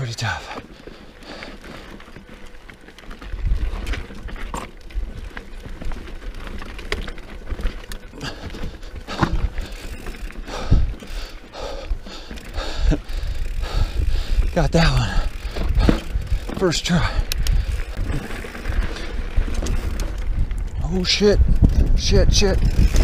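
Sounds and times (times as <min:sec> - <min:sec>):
tyres crunching on dirt and rock: 0:00.0 - 0:11.1
bike knocking on rocks: 0:01.8 - 0:10.3, 0:15.3 - 0:20.5.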